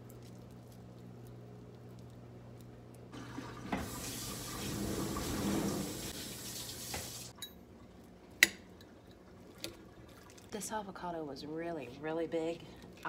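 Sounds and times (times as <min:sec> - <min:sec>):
faucet water running into steel sink: 0:03.2 - 0:07.3.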